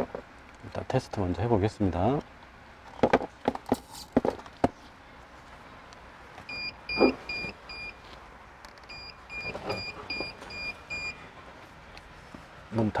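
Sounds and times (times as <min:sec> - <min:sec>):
high electronic beeps: 0:08.9 - 0:11.2.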